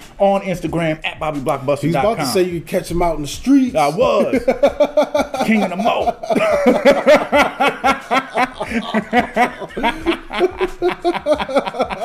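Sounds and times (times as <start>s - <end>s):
men laughing hard: 4.1s - 12.0s.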